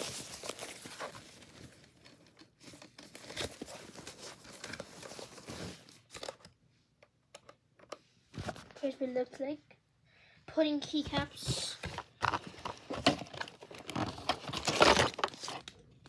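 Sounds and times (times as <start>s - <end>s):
packaging tearing and crinkling: 13.2s - 15.8s.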